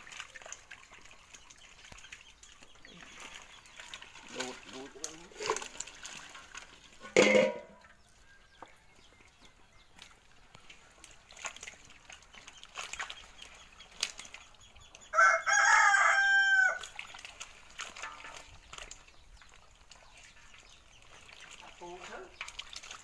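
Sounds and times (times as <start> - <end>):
fish handled in metal basin: 0.0 - 23.0
rooster crowing: 15.1 - 16.9.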